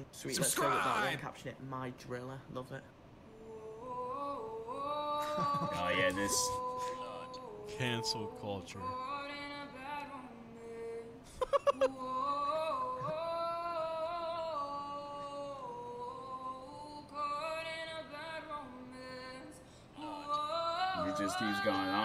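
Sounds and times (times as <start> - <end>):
man singing unaccompanied: 5.4 - 9.7, 20.6 - 22.0.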